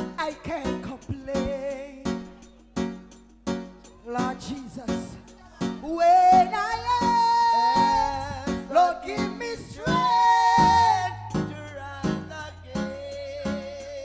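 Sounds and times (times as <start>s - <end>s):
bass line: 0.0s - 14.0s
drum kit steady beat: 0.0s - 14.0s
person singing sliding notes: 3.9s - 14.0s.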